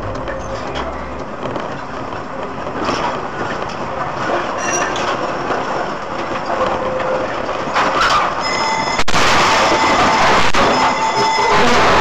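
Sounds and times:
road noise: 0.0 - 12.0
rush of noise: 0.0 - 12.0
tram rolling rail noise: 0.0 - 12.0
high squeals: 7.9 - 12.0.

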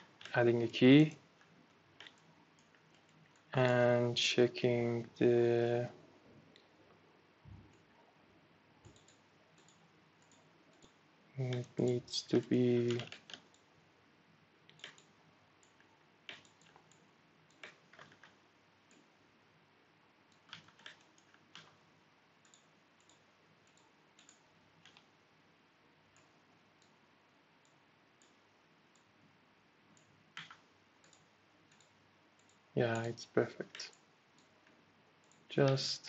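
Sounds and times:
room hiss: 0.0 - 36.0
mouse and keyboard clicks: 2.0 - 3.5, 8.8 - 12.0, 14.7 - 19.1, 20.3 - 21.8, 22.4 - 25.1, 30.0 - 34.5.

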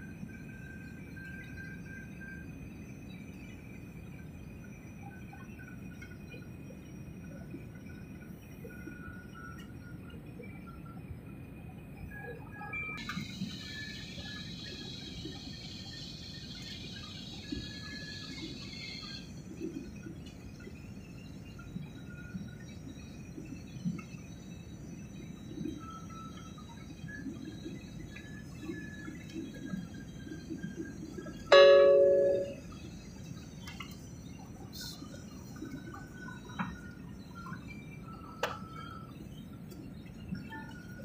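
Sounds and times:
thin high whine: 0.0 - 41.0
airliner cabin chime: 31.5 - 32.8.

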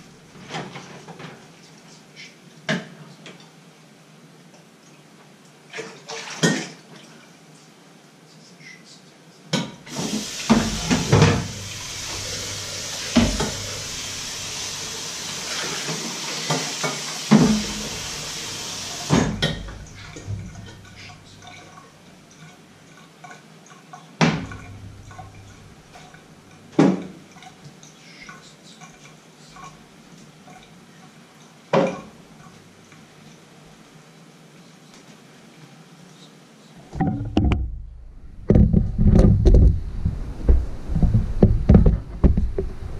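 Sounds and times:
tap water running into sink: 9.9 - 21.8, 24.2 - 27.9.

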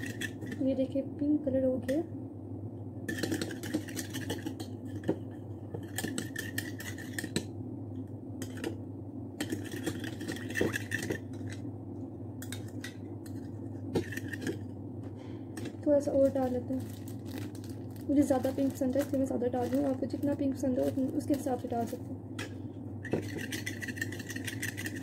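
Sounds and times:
low hum: 0.0 - 25.0
plastic spoon scraping a bowl: 3.1 - 7.4, 9.4 - 11.6, 23.1 - 25.0.

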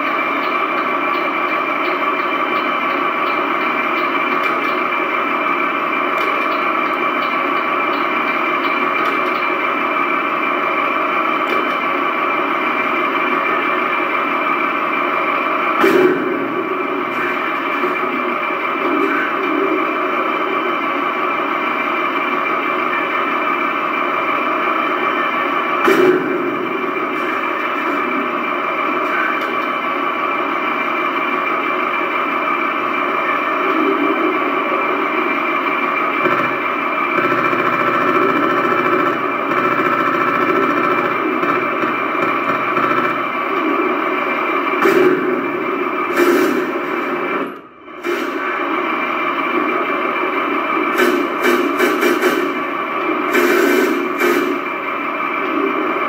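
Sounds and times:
engine idle through small speaker: 0.0 - 44.8.

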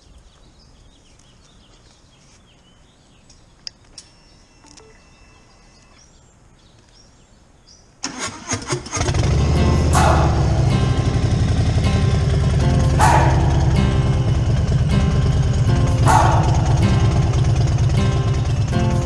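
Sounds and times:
faint high chirps: 3.9 - 6.1
motorcycle starter cranking: 8.0 - 12.8.

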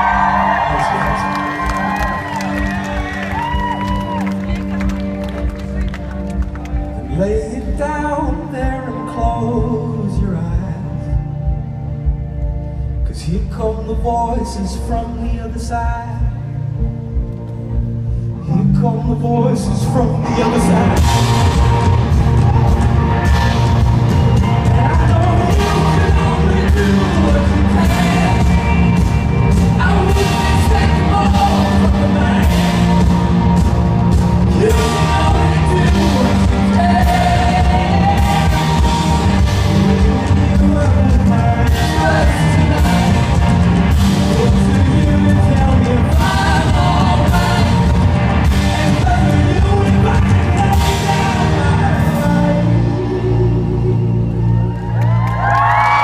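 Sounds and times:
steady drum beat: 0.0 - 19.2, 20.0 - 54.3
live rock band: 0.0 - 56.0
wavering lead guitar line: 19.5 - 56.0.

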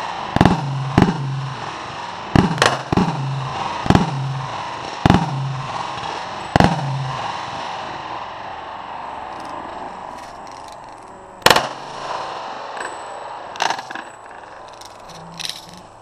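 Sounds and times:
pistol shot: 0.3 - 7.7, 11.4 - 13.8.

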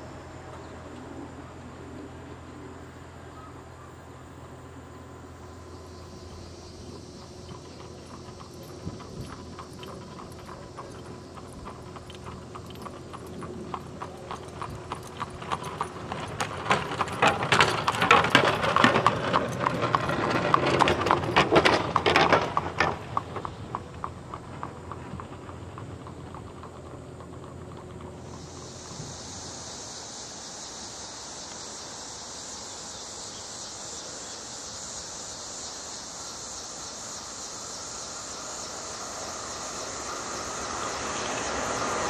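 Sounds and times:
horse hooves clip-clopping on pavement: 6.3 - 29.4.

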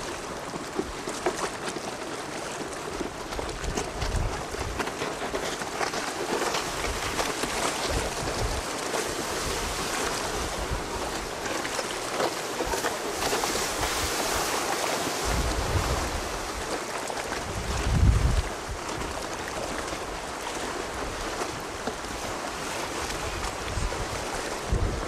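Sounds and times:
surf and choppy sea: 0.0 - 25.0
wind buffeting microphone: 3.0 - 4.9, 6.6 - 11.5, 15.2 - 20.2, 20.9 - 25.0.

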